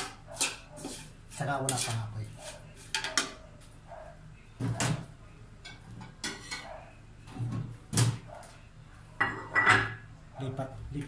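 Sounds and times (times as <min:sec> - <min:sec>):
metal ladle scraping a wok: 0:00.0 - 0:03.0.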